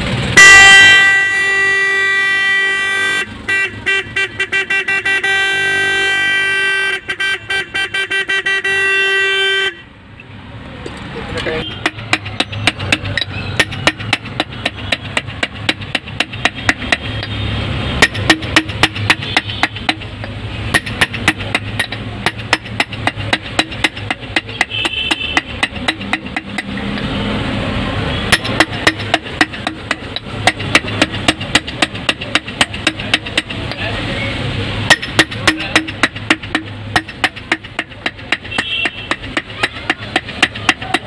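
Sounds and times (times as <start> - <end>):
small hammer tapping metal rim: 11.7 - 17.4, 18.0 - 27.1, 28.3 - 33.9, 34.9 - 41.0.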